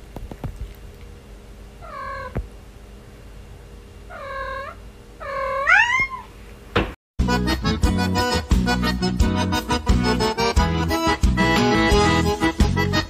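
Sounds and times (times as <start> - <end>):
cat meowing: 1.8 - 2.4, 4.1 - 6.3.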